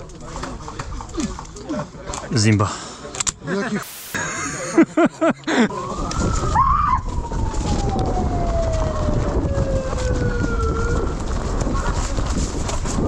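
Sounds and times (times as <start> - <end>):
siren winding down: 5.7 - 11.3.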